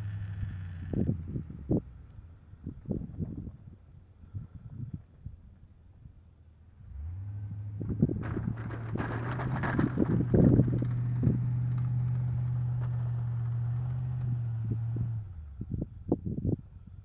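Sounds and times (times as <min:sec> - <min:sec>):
motor hum: 0:00.0 - 0:01.8
wind buffeting microphone: 0:02.6 - 0:05.6, 0:07.7 - 0:12.6, 0:14.6 - 0:17.0.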